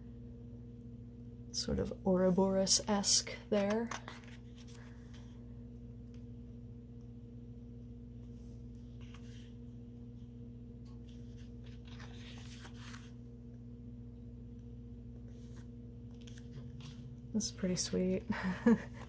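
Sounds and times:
steady low hum: 0.0 - 19.0
book pages rustling: 3.8 - 5.4, 8.2 - 9.7, 10.9 - 13.2, 15.2 - 17.2.

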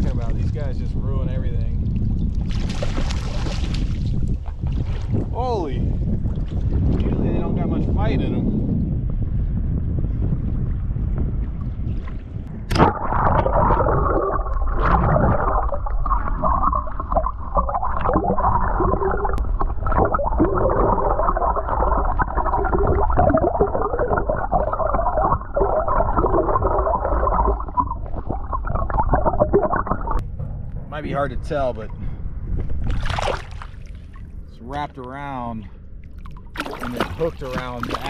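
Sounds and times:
microphone splashing into water: 1.6 - 7.5, 10.0 - 30.2, 32.6 - 34.3, 36.0 - 38.0
underwater gurgling and bubbling: 10.8 - 30.2.

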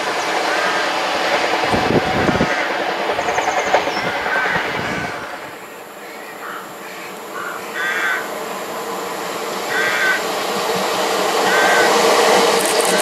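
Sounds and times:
train wheels clattering on rails: 0.0 - 5.7, 9.2 - 13.0
faint rail hum: 0.0 - 13.0.

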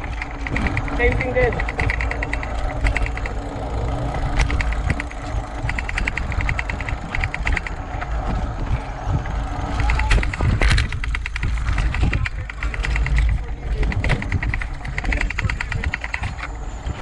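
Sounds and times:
bike freehub ticking: 0.0 - 16.9
tyre rumble: 0.0 - 17.0
wind on microphone: 3.9 - 17.0.

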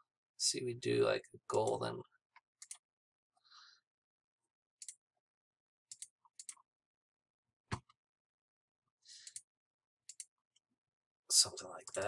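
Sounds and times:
computer mouse clicks: 4.8 - 5.0, 5.9 - 6.6, 9.2 - 9.5, 10.1 - 10.3.

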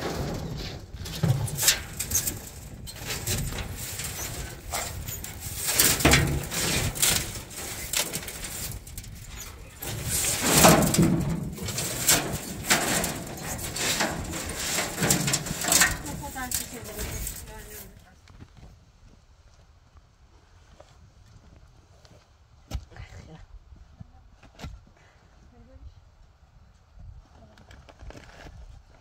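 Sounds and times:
broom sweeping steel floor: 0.0 - 18.0.

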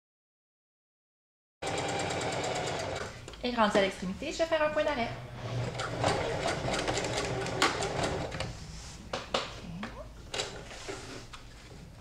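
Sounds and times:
sewing machine stitching: 1.6 - 3.1, 5.4 - 8.4.

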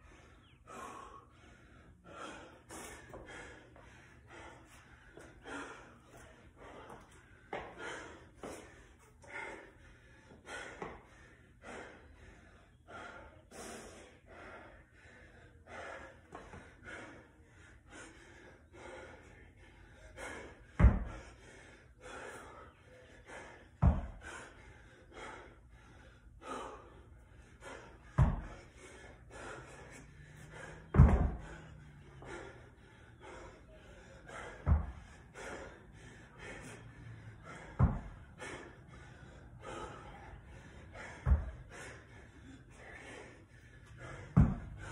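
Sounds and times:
heavy gasping breaths: 0.0 - 44.9
dumbbell thudding on rubber mat: 20.8 - 21.2, 23.8 - 24.2, 28.2 - 28.6, 30.9 - 31.5, 37.7 - 38.2, 41.2 - 41.6, 44.3 - 44.8.

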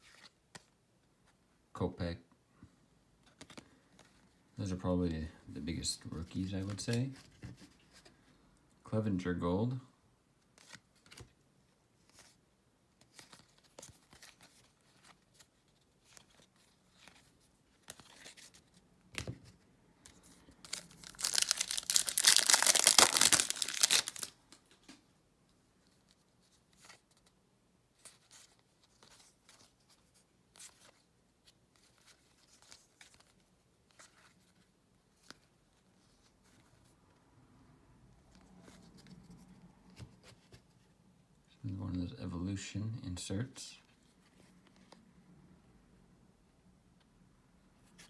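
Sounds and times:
cards being handled: 0.0 - 1.4, 3.2 - 4.4, 6.1 - 8.2, 10.4 - 11.4, 12.0 - 12.4, 13.0 - 25.0, 25.8 - 27.4, 28.0 - 36.9
plastic wrapper tearing: 20.6 - 24.4.

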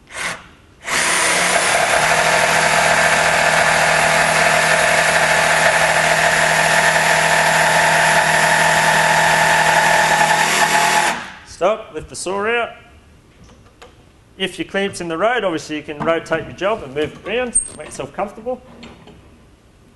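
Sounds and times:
jigsaw cutting through plywood: 0.8 - 11.3.

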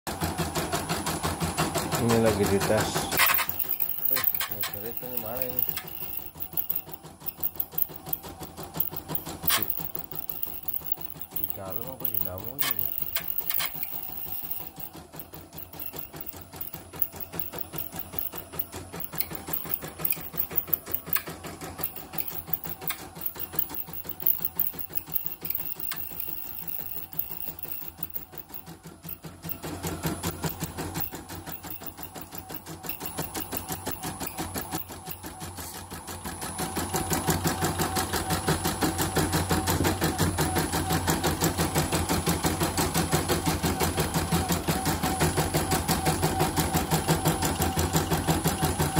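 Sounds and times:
embroidery machine clattering: 1.7 - 35.5.

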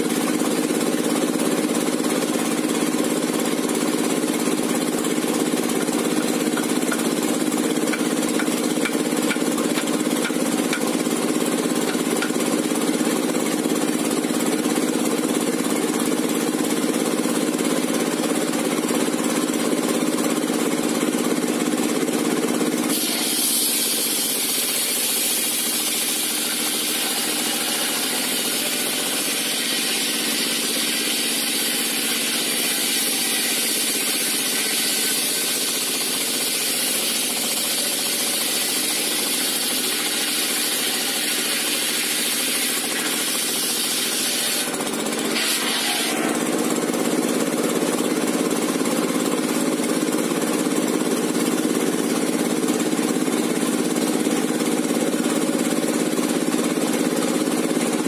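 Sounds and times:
circular saw cutting log: 0.0 - 19.8, 22.2 - 58.0
diesel engine knocking drone: 0.0 - 22.9, 44.6 - 58.0.

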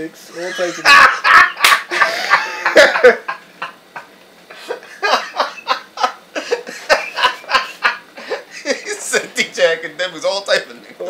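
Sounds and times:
men laughing: 0.3 - 9.4.

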